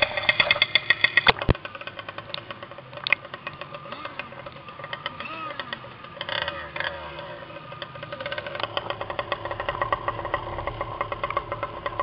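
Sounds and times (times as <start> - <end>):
small two-stroke engine running: 0.0 - 12.0
water splashing against hull: 1.1 - 1.6.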